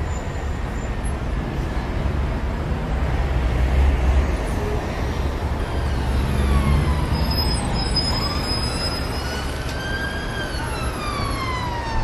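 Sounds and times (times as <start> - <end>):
road traffic rumble: 0.0 - 12.0
emergency vehicle siren wailing: 5.2 - 12.0.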